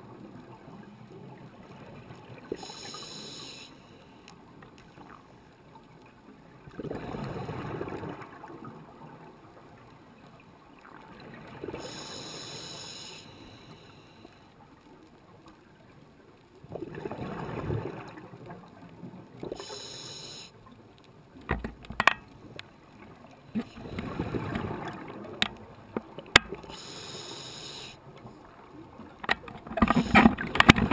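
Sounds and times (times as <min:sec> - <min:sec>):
regulator hiss on inhale: 0:02.5 - 0:04.4, 0:11.7 - 0:14.6, 0:19.5 - 0:20.6, 0:23.5 - 0:24.4, 0:26.6 - 0:28.0, 0:29.8 - 0:30.6.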